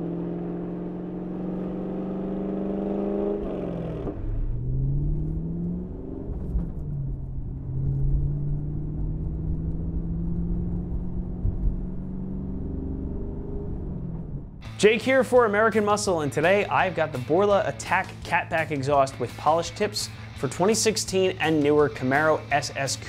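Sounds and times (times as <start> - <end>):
car engine rumble: 0.0 - 14.8.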